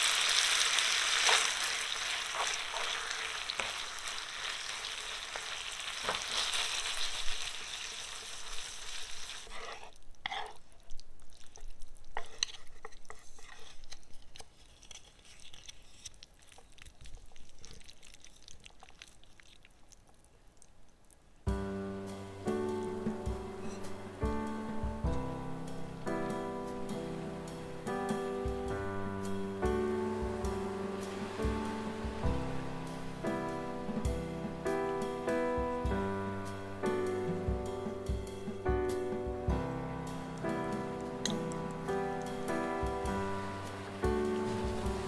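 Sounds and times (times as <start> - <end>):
oil and water sizzling in pan: 0.0 - 10.5, 29.2 - 36.0, 40.0 - 45.0
wooden spoon clicks and scrapes: 9.5 - 10.6, 12.1 - 16.7.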